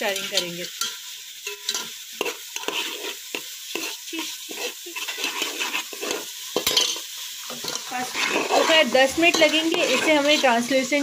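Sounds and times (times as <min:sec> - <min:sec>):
onions sizzling in oil: 0:00.0 - 0:11.0
spoon scraping metal pot: 0:00.0 - 0:11.0.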